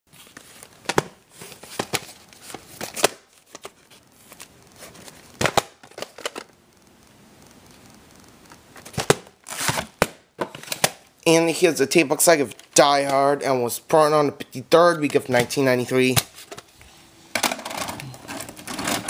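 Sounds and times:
tape box clicks and rustles: 0:00.2 - 0:06.6, 0:08.5 - 0:11.1, 0:17.3 - 0:19.0.

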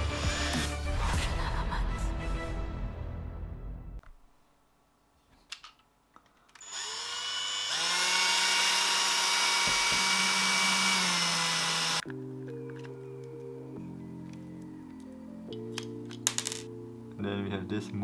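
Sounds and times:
cordless drill motor whine: 0:06.6 - 0:12.0.

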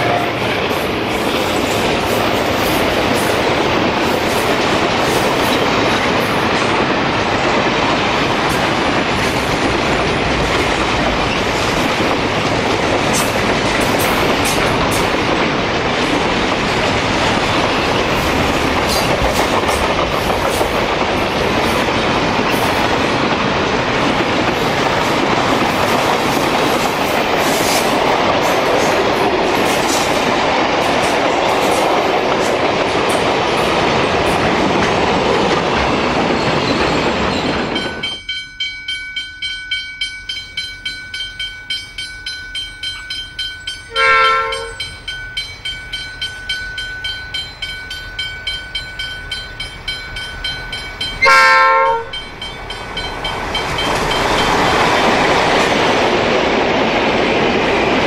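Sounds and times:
train horn: 0:00.0 - 0:00.7, 0:43.9 - 0:44.9, 0:51.2 - 0:52.2
freight train rumbling past: 0:00.0 - 0:58.0
wheels clicking over rail joints: 0:00.6 - 0:58.0.

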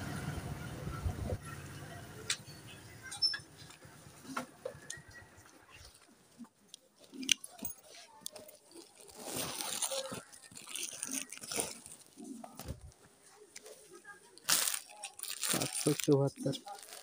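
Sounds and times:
plastic packets rustling: 0:06.9 - 0:17.0.

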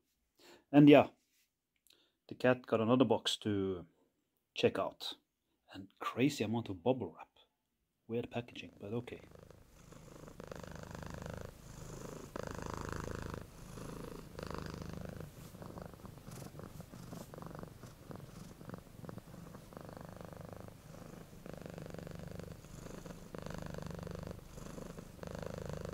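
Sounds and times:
cat purring: 0:08.6 - 0:25.9.

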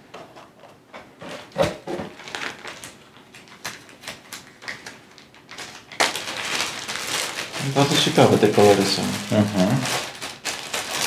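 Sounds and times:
plastic bags crinkling: 0:02.0 - 0:11.0.

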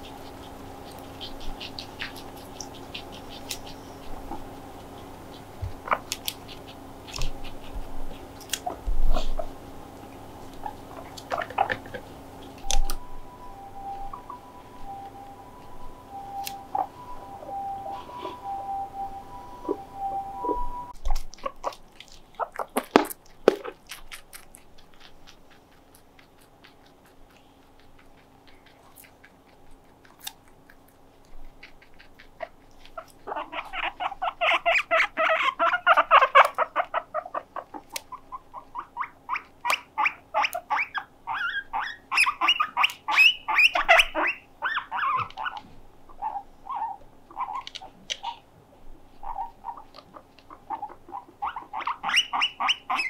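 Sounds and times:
guinea pigs squeaking: 0:00.0 - 0:53.0
sharp clicks: 0:11.1 - 0:13.0.

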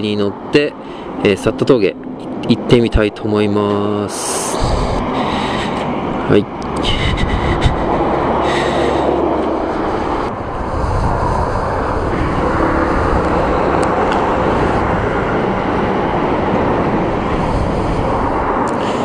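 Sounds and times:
traffic passing on busy road: 0:00.0 - 0:19.0.

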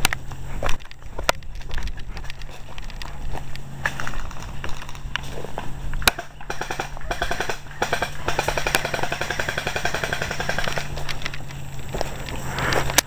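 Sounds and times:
airsoft gun firing bursts: 0:06.0 - 0:11.2.

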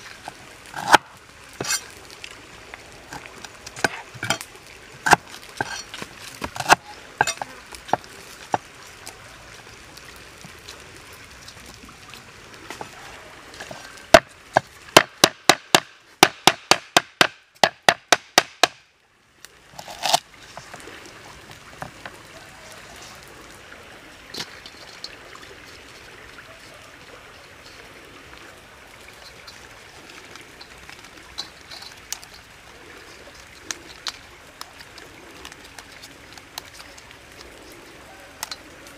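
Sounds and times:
faint outdoor hiss: 0:00.0 - 0:38.9
cleaver chopping on wooden block: 0:15.0 - 0:18.8.

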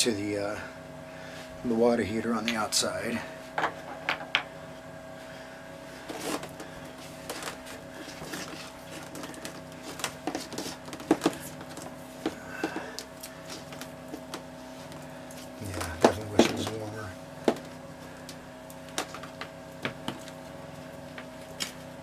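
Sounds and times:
steady low hum: 0:00.0 - 0:22.0
plastic tubing knocks and rustles: 0:08.2 - 0:12.8.

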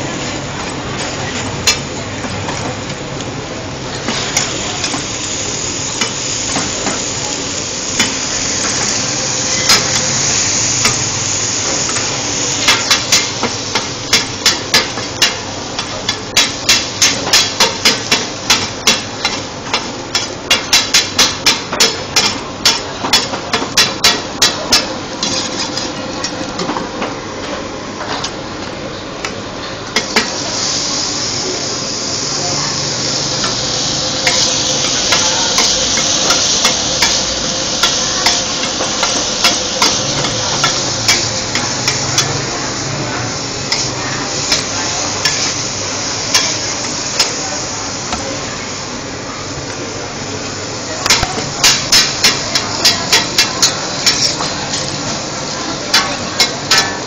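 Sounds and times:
food sizzling in oil: 0:00.0 - 0:26.7, 0:29.8 - 0:49.0, 0:50.5 - 0:57.0
metal spatula scraping a wok: 0:25.2 - 0:26.0, 0:51.6 - 0:54.9.

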